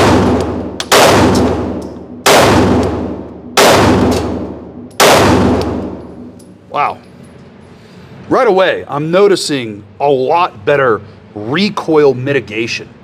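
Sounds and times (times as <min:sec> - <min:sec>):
pistol shots reverberating indoors: 0:00.0 - 0:06.6.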